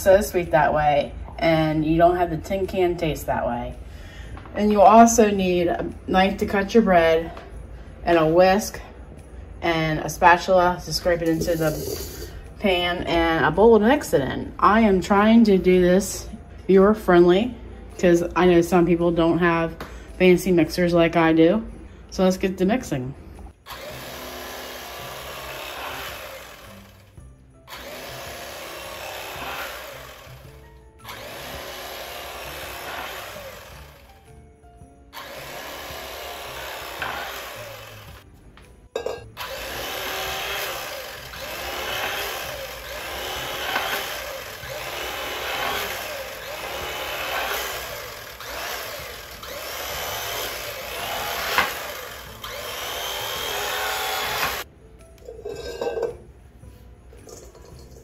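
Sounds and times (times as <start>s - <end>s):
background music: 0.0s - 58.0s
electric knife cutting bread: 23.7s - 34.3s, 35.1s - 38.3s, 39.4s - 54.7s.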